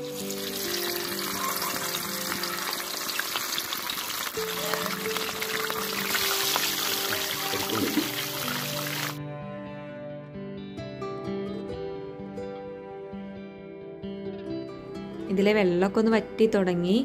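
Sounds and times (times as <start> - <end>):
chicken sizzling in hot oil: 0.0 - 9.2.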